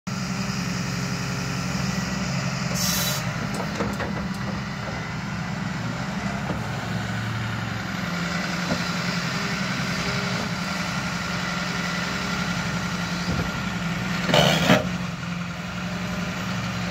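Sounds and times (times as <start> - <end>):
excavator diesel engine running: 0.1 - 16.9
brief hiss: 2.8 - 3.3.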